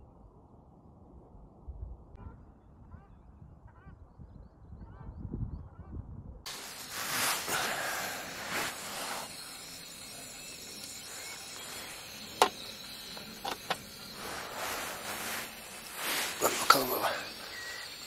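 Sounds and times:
steady hiss: 6.5s - 18.0s.

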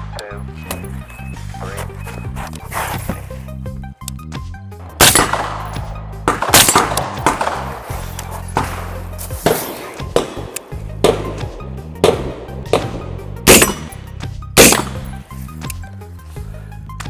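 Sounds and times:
background music with bass line: 0.0s - 17.0s
gunshots: 4.8s - 15.2s.

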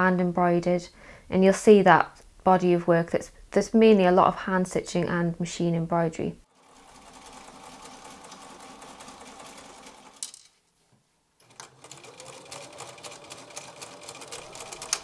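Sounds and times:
sewing machine stitching: 6.5s - 10.3s, 11.4s - 15.0s.

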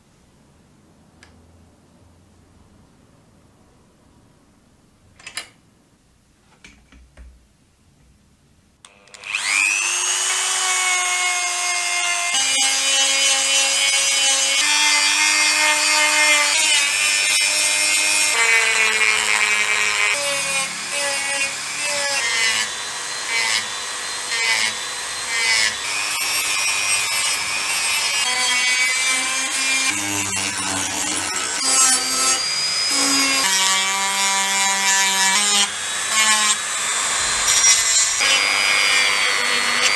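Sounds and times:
rotary tool grinding metal: 9.1s - 39.9s.

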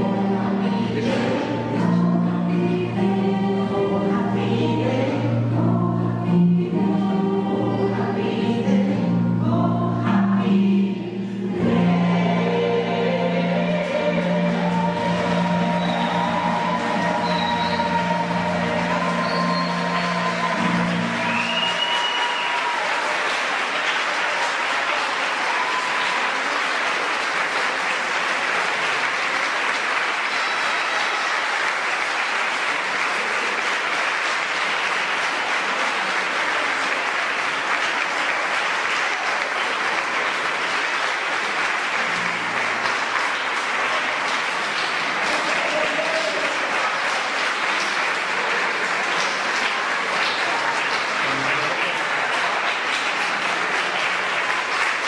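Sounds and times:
audience applauding: 13.6s - 55.0s.

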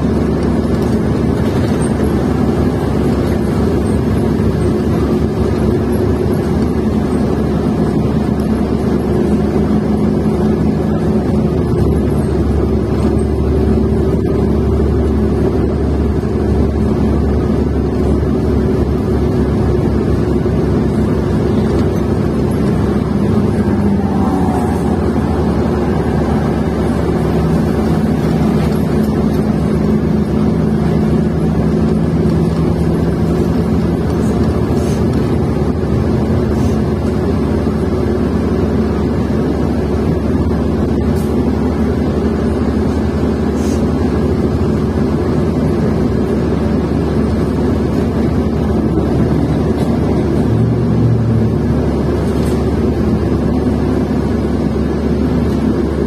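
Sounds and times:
bus engine rumbling: 0.0s - 56.0s
low hum: 8.4s - 38.3s
held drone: 18.9s - 31.4s.

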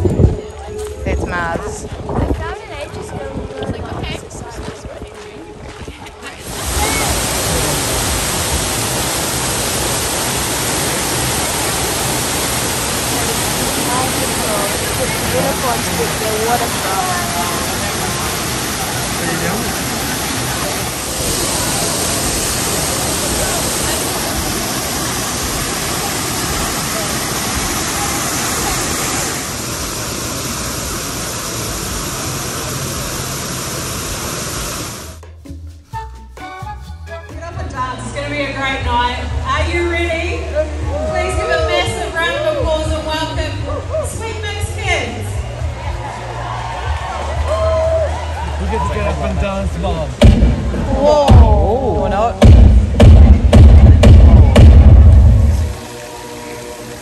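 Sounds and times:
waterfall rushing: 6.4s - 35.2s, 40.4s - 57.0s.

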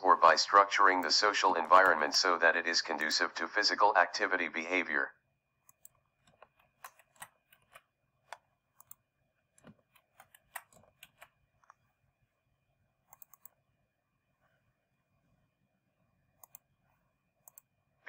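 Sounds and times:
computer keys clicking: 5.7s - 9.0s, 9.6s - 11.8s, 13.1s - 13.6s, 16.4s - 16.7s.

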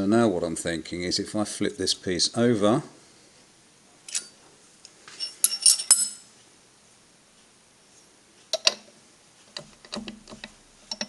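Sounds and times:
metal tools clinking: 4.1s - 4.4s, 5.1s - 6.3s.

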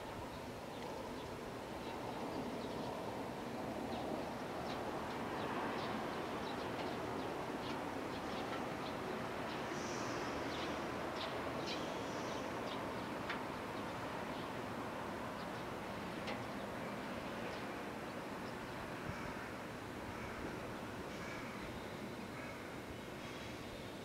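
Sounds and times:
small birds chirping: 3.9s - 14.6s.

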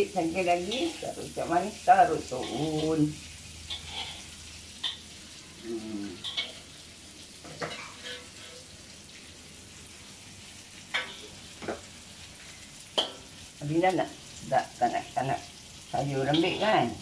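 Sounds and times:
vegetables sizzling in a wok: 0.0s - 17.0s
metal ladle scraping a wok: 3.6s - 5.0s, 6.2s - 6.7s, 7.4s - 8.7s.

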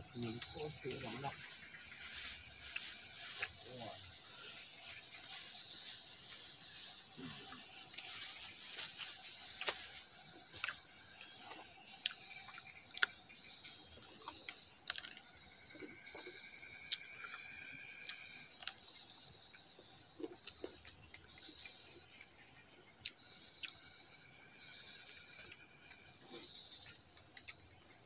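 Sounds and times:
person chewing and smacking: 10.6s - 13.2s, 14.0s - 22.3s, 26.8s - 27.7s.

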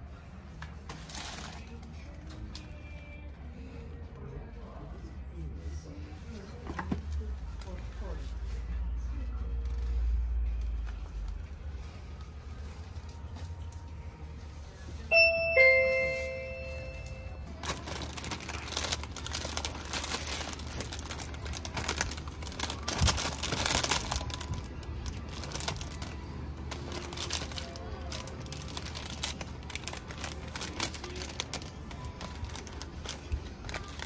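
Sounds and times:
low steady hum: 0.0s - 34.0s
plastic bags crinkling: 0.9s - 1.9s, 17.5s - 34.0s.

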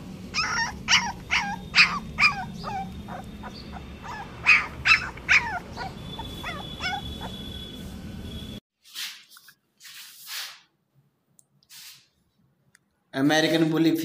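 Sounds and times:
puppy whimpering: 0.3s - 7.5s.

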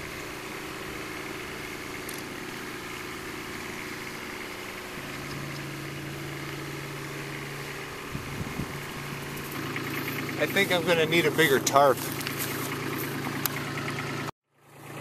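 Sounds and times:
tractor engine idling: 0.0s - 15.0s.

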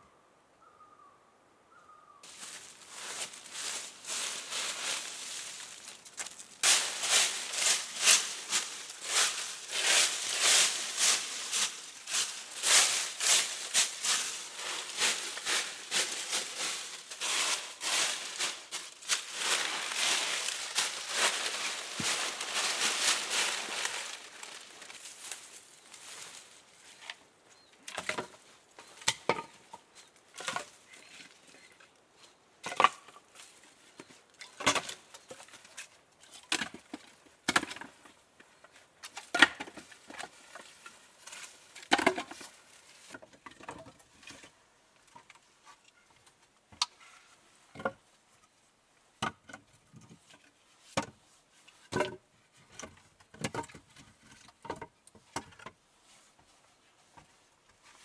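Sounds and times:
crunching in dry leaves: 2.2s - 27.0s.

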